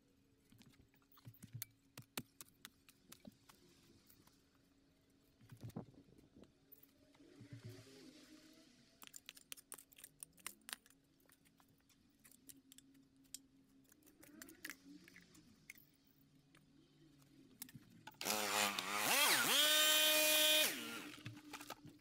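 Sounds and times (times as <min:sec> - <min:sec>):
faint low hum: 0:00.0 - 0:18.9
faint sharp clicks and crackles: 0:09.0 - 0:18.2.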